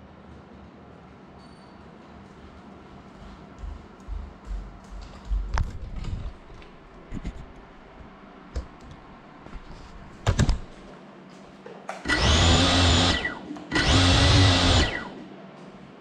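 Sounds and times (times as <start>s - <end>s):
drone motors whining: 12.1s - 15.3s.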